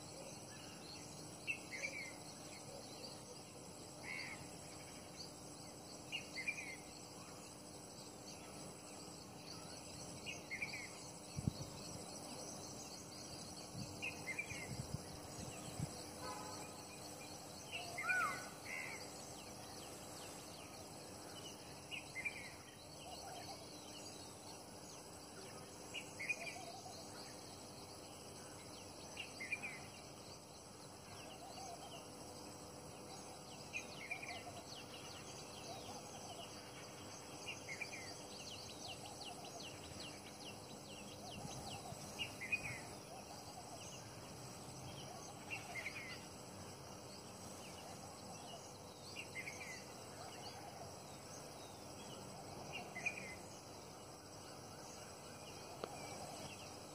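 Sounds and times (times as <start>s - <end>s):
insects: 0.0s - 56.9s.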